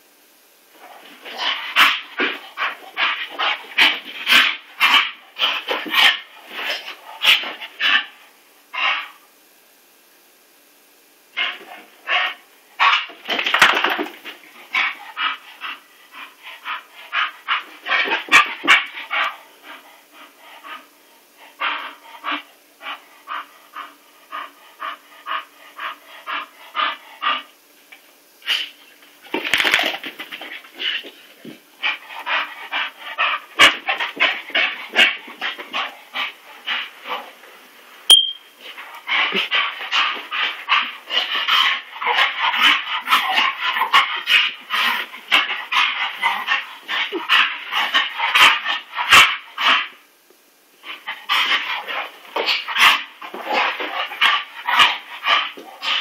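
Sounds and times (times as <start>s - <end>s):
dog panting hard: 14.6s - 27.5s, 31.8s - 37.4s, 38.6s - 49.8s.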